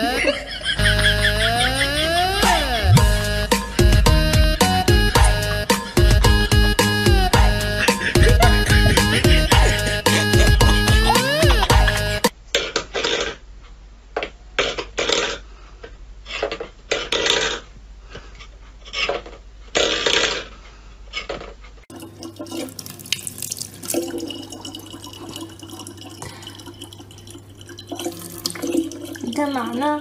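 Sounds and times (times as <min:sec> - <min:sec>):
water running into plastic bottle: 0:21.9 - 0:30.0.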